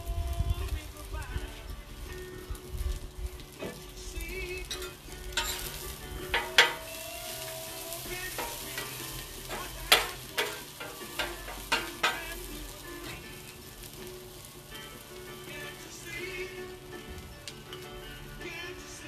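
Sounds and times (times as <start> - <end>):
onions sizzling on a griddle: 0.0 - 19.0
spatula scraping and clacking: 4.6 - 13.3.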